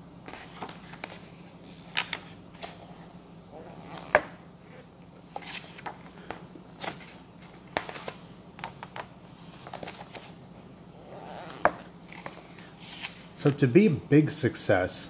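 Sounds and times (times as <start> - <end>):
book pages turning: 0.2 - 3.1, 3.7 - 10.4, 11.2 - 13.6.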